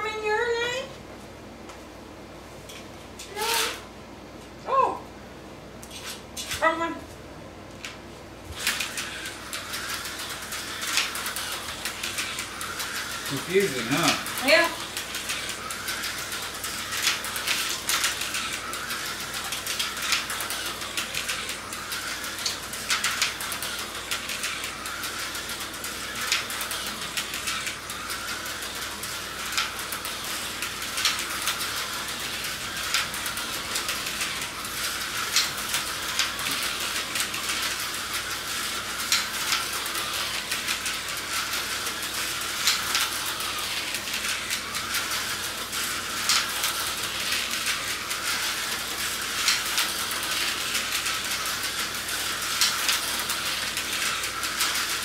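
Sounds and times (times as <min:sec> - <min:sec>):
slot car motor whine: 0:08.5 - 0:55.0.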